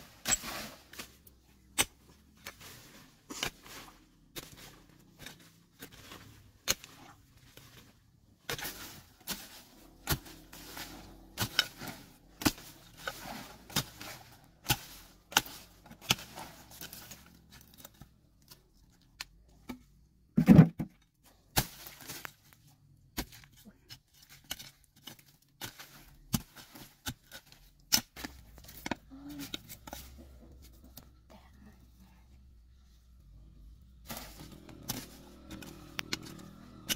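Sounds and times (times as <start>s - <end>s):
earth scraping and crumbling: 0.0s - 19.5s, 20.3s - 31.3s, 32.6s - 36.9s
digging tool chopping into soil: 8.5s - 14.0s, 25.6s - 29.0s.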